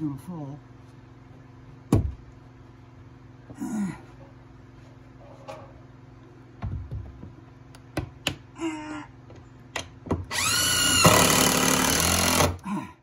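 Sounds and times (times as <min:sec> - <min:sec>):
cordless drill whining: 0:10.3 - 0:12.6.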